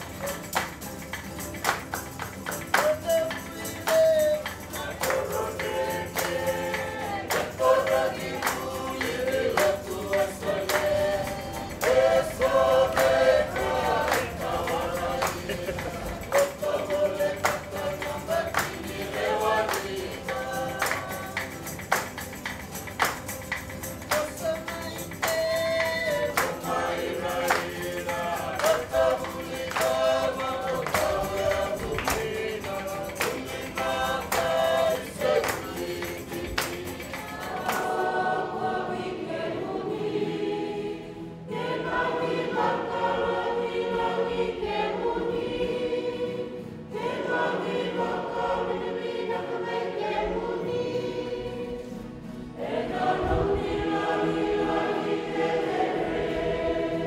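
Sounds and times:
music with percussive beat: 0.0 - 38.3
choir singing: 2.3 - 57.0.

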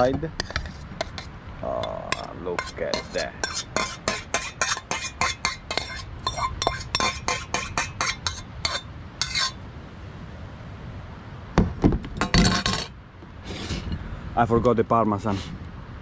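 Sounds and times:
cutlery clinking on saucepan: 0.4 - 9.5.

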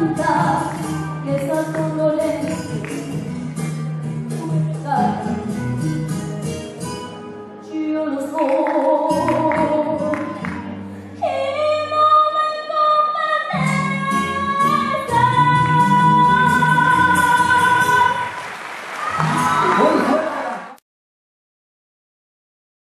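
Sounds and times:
girl singing: 0.0 - 3.2, 4.4 - 5.3, 7.6 - 10.3, 11.2 - 18.3
instrumental accompaniment: 0.0 - 11.2.

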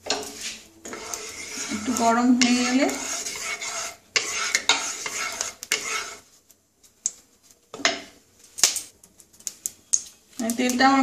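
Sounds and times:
wooden spatula scraping a pan: 0.0 - 6.5.

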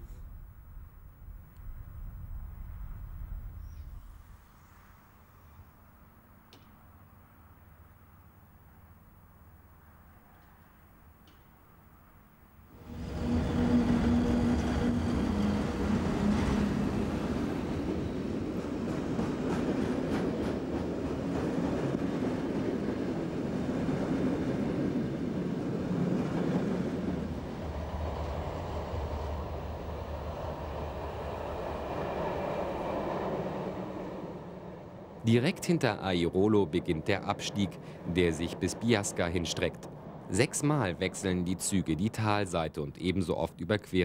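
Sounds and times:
train hum: 0.0 - 44.0
train wheels rumbling: 12.8 - 42.3.

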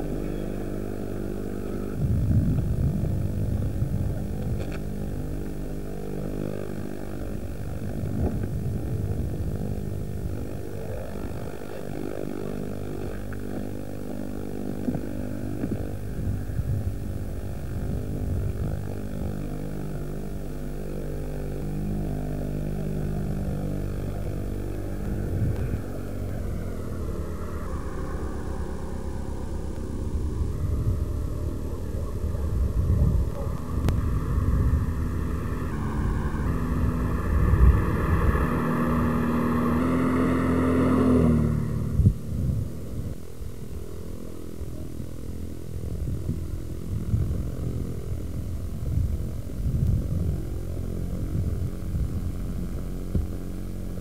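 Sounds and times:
car engine droning: 0.0 - 54.0
road and tyre rumble: 0.0 - 54.0.

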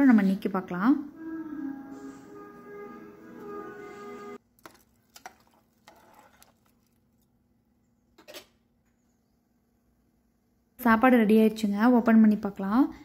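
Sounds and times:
background music: 1.0 - 4.4.

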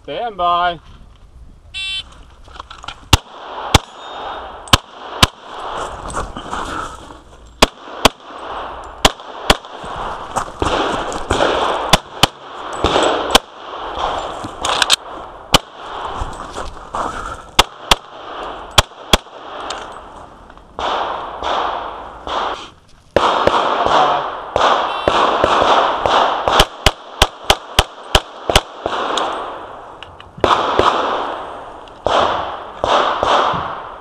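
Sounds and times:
pistol shots: 3.1 - 5.8, 7.6 - 9.9, 10.6 - 16.1, 17.6 - 19.9, 20.8 - 29.8, 30.4 - 34.0.

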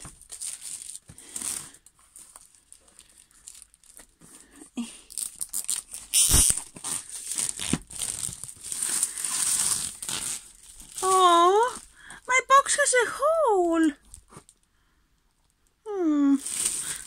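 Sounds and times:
plastic shrink-wrap tearing: 0.0 - 4.1, 5.0 - 11.9, 16.4 - 17.0.

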